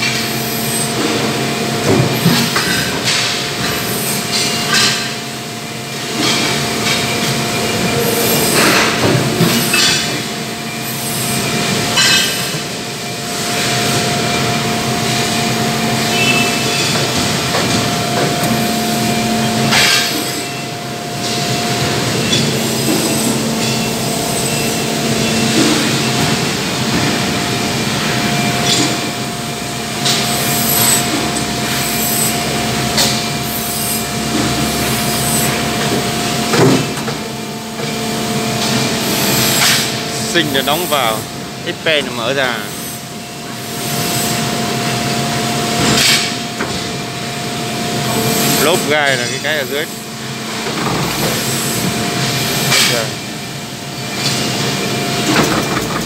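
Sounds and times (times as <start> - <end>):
machinery hum: 0.0 - 56.0
machinery whine: 0.0 - 56.0.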